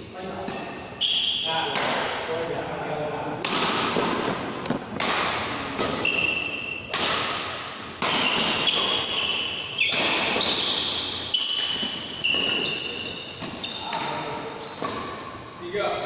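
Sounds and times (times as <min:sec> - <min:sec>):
racket hitting shuttlecock: 0:01.7 - 0:02.2, 0:03.4 - 0:15.3
shoe squeaks on court floor: 0:05.9 - 0:06.9, 0:08.1 - 0:16.0.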